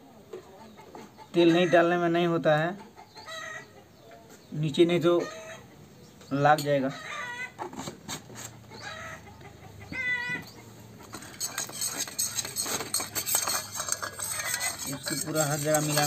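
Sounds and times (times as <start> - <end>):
hen clucking: 8.4 - 16.0
steel spoon scraping steel bowl: 11.0 - 16.0.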